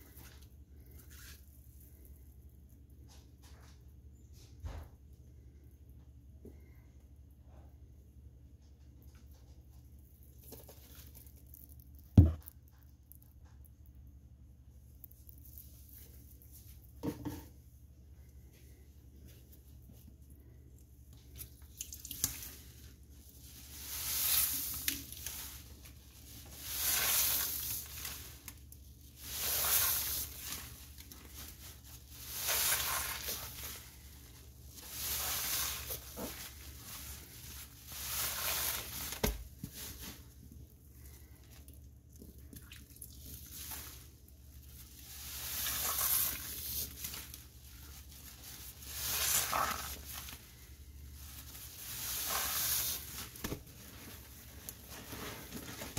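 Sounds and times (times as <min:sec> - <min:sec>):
soapy sponge squeezed fizzing: 0:21.3 - 0:28.4, 0:29.1 - 0:39.3, 0:44.8 - 0:55.9.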